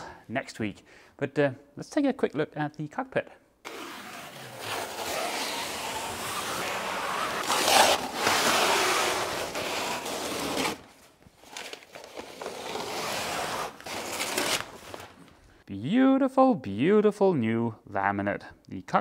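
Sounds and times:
peel ply tearing off fiberglass: 0:03.6 - 0:15.3.

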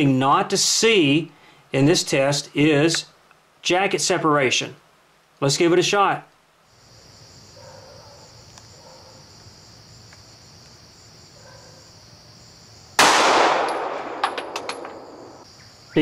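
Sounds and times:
crickets chirring: 0:06.6 - 0:16.0
pistol shot: 0:13.0 - 0:15.4
light metallic clinks: 0:13.6 - 0:15.2.

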